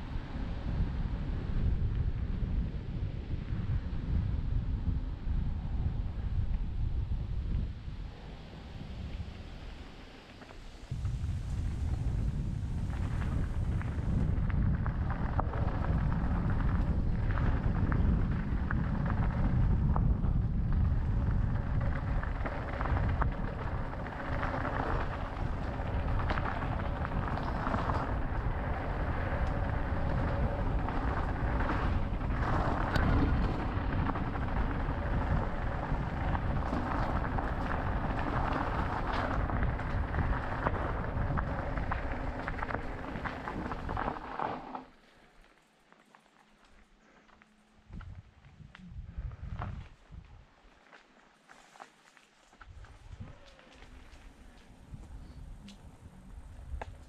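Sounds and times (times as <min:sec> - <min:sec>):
wind rumble on microphone: 0:00.0 - 0:44.9, 0:47.8 - 0:50.6, 0:52.6 - 0:57.0
bike clicks and rattles: 0:13.1 - 0:48.2.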